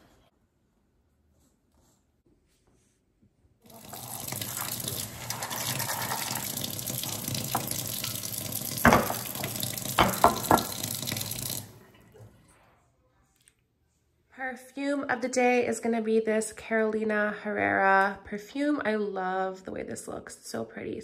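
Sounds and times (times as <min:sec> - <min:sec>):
tap running into metal bowl: 0:03.9 - 0:11.6
bowl knocking: 0:08.8 - 0:10.9.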